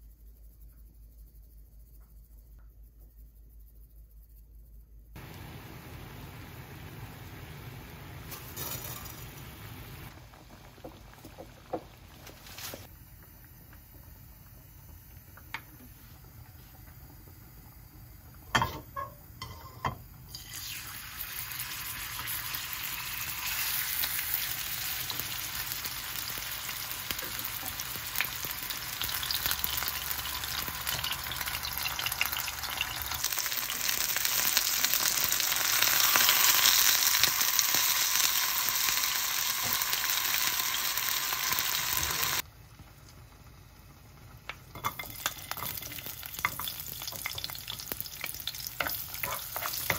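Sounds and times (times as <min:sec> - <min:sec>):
chicken sizzling in oil: 0:05.2 - 0:13.9, 0:18.5 - 0:49.9.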